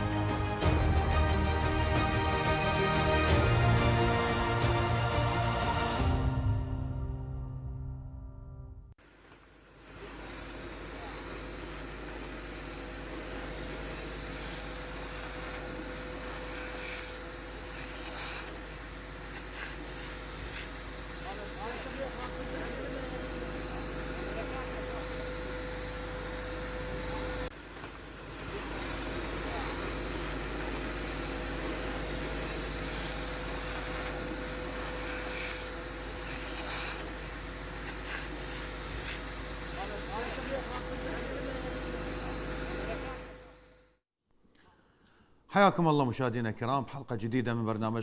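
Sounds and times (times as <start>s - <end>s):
fire hose spraying water: 9.0s - 43.3s
loud hissing: 9.6s - 43.0s.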